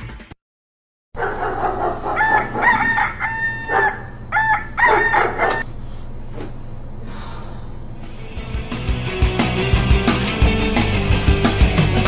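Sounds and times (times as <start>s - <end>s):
rooster crowing: 1.2s - 5.6s
steady low hum: 1.2s - 8.6s.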